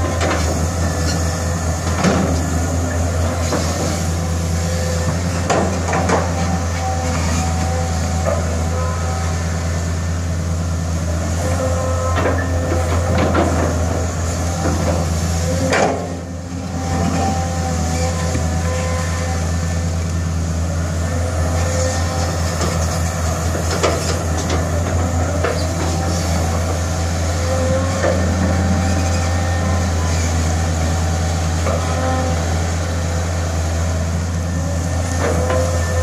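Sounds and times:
diesel engine running: 0.0 - 36.0
hydraulic whine: 0.0 - 36.0.

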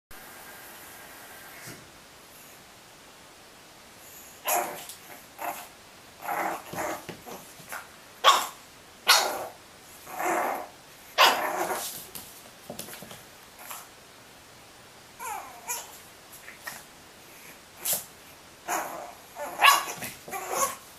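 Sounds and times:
puppy barking: 8.2 - 9.5, 11.2 - 11.8, 18.7 - 20.8.

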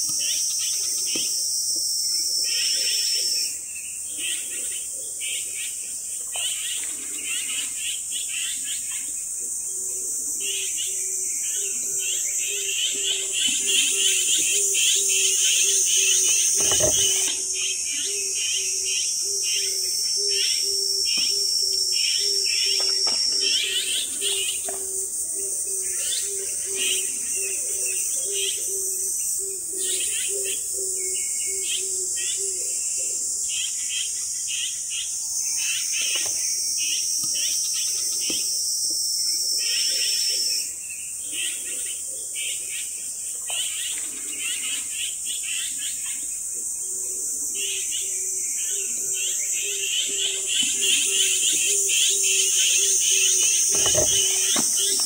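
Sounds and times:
high-pitched insect chorus: 0.0 - 55.0
small birds chirping: 39.5 - 55.0.

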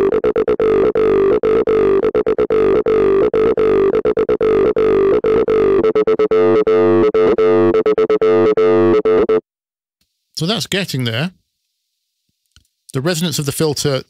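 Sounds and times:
distorted synth bassline: 0.0 - 9.4.

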